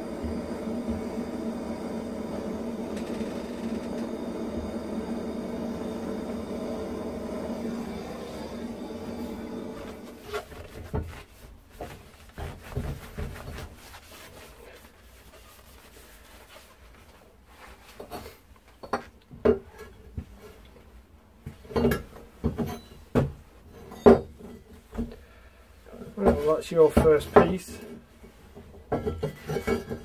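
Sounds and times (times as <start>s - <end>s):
rag wiping metal pipe: 9.0s - 18.3s.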